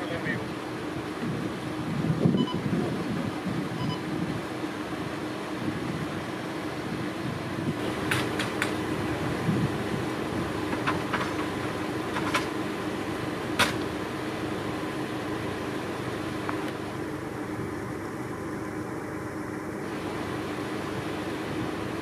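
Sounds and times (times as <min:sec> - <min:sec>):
fire truck engine humming: 0:00.0 - 0:22.0
sharp metallic clicks and knocks: 0:08.0 - 0:08.8, 0:13.6 - 0:13.9.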